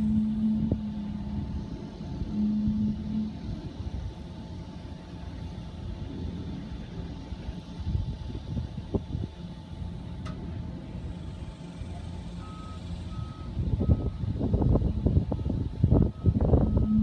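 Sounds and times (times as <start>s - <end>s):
reversing beeper: 0.0s - 4.1s, 12.3s - 14.2s, 15.3s - 17.0s
trailer running gear groaning: 0.0s - 4.7s
low rumble: 0.0s - 12.6s.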